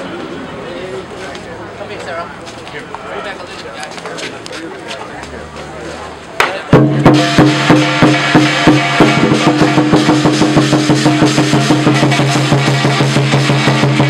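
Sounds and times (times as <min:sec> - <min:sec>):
cymbals: 0:06.4 - 0:14.0
drum beaten fast: 0:06.4 - 0:14.0
ringing gong: 0:07.1 - 0:14.0.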